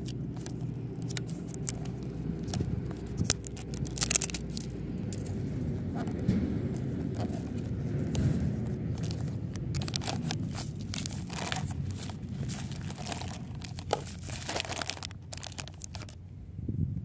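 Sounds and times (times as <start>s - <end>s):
plastic and foil packets crinkling: 0.0s - 16.2s.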